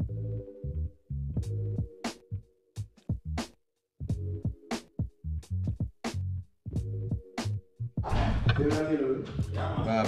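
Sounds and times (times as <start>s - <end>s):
bass and hi-hat beat: 0.0s - 10.0s.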